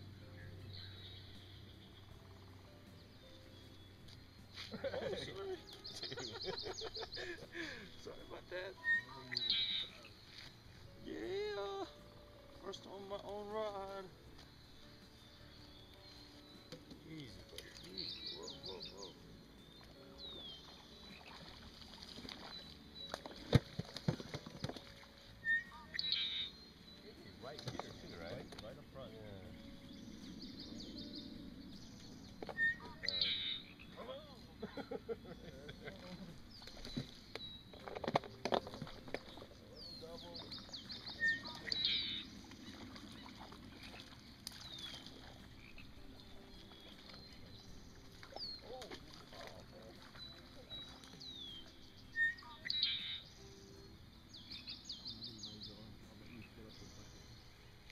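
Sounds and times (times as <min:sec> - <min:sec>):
low steady background noise: 0:00.0 - 0:57.9
faint bird chirps: 0:00.2 - 0:13.1, 0:14.0 - 0:57.9
bird whistle: 0:08.8 - 0:10.1, 0:25.4 - 0:26.6, 0:32.5 - 0:33.8, 0:41.0 - 0:42.3, 0:52.1 - 0:53.3.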